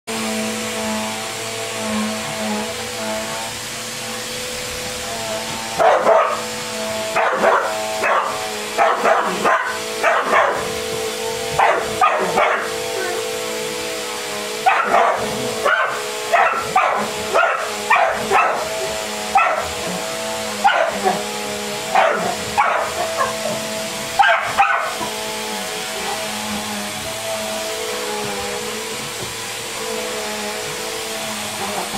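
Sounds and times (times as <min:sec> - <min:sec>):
vacuum cleaner motor hum: 0:00.1 - 0:31.9
dog barking: 0:05.8 - 0:06.5, 0:07.1 - 0:10.7, 0:11.5 - 0:13.2, 0:14.6 - 0:20.0, 0:20.6 - 0:21.2, 0:21.9 - 0:23.6, 0:24.2 - 0:25.1.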